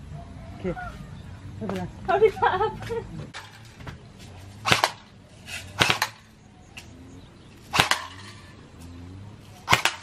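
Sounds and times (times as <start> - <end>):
game gun shots: 5.8 - 6.2, 7.7 - 8.2.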